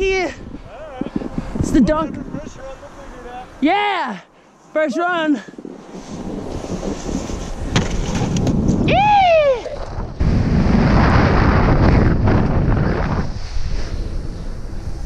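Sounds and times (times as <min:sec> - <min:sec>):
wind buffeting microphone: 0:00.0 - 0:03.7, 0:04.6 - 0:15.0
person whooping shout: 0:08.9 - 0:09.8.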